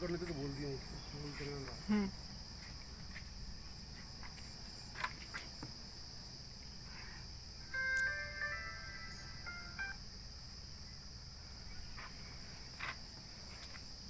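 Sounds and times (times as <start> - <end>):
crickets chirring: 0.0 - 14.0
electronic melody: 7.7 - 10.0.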